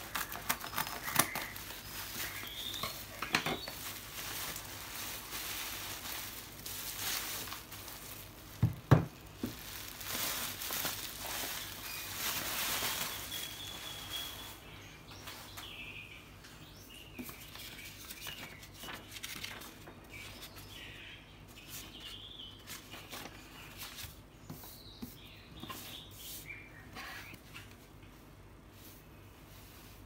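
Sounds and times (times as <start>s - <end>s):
paper rustling: 0.0s - 14.6s, 17.2s - 20.6s
plastic mailer crinkling: 0.0s - 14.6s
faint bird chirps: 0.2s - 3.9s, 11.2s - 19.1s, 24.5s - 27.6s.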